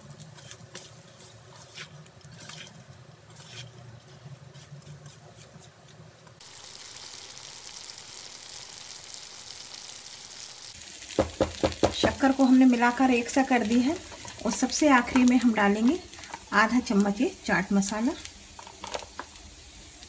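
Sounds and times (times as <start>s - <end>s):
frying sizzle: 0.0s - 4.7s, 6.2s - 20.0s
spatula scraping and tapping pan: 13.6s - 16.4s.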